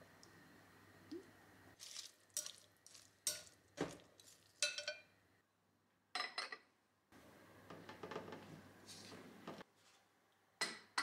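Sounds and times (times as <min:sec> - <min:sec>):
vegetables rustling: 0:01.8 - 0:03.2.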